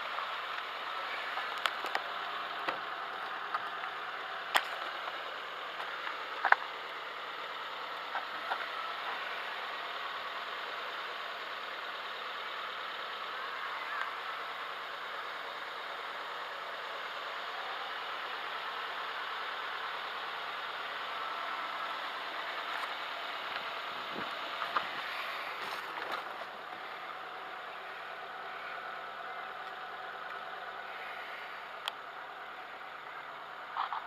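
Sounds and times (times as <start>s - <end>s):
car engine idling: 0.0s - 34.0s.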